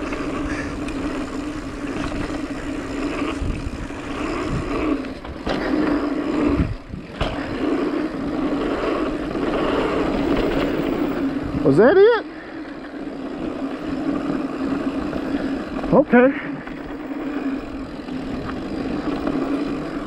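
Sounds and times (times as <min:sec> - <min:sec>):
bike tyres buzzing on dirt: 0:00.0 - 0:20.0
bike knocking over bumps: 0:05.1 - 0:08.6, 0:09.2 - 0:11.2.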